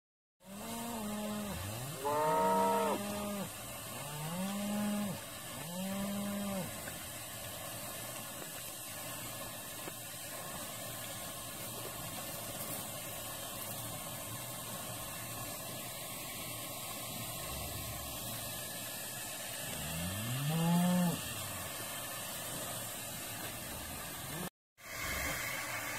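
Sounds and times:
cattle mooing: 0.5s - 6.7s.

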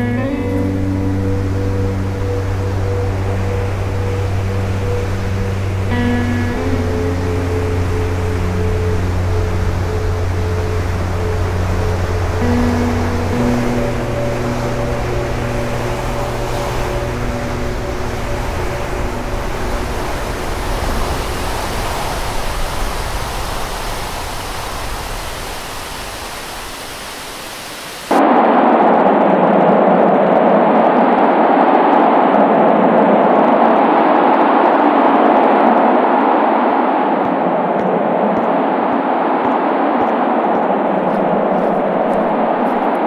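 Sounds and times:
wind buffeting microphone: 0.0s - 26.3s
steady rushing noise: 0.0s - 43.0s.

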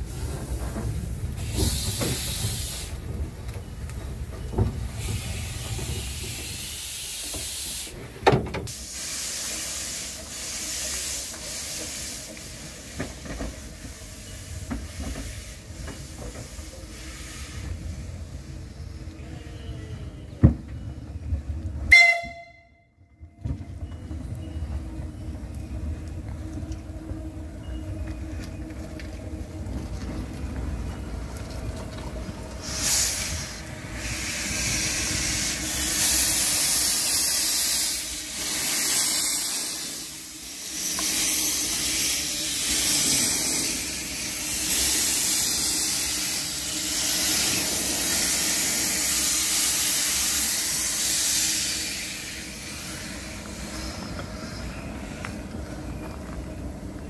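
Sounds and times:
steam hissing: 0.0s - 3.4s, 4.1s - 19.0s, 32.5s - 55.8s.

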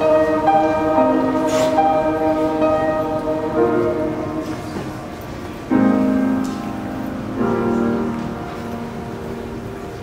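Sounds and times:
piano playing slow chords: 0.0s - 10.0s.

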